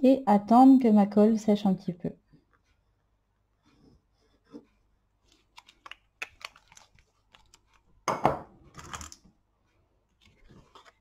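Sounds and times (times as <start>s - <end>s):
paper rustling: 5.2s - 8.0s, 10.1s - 11.0s.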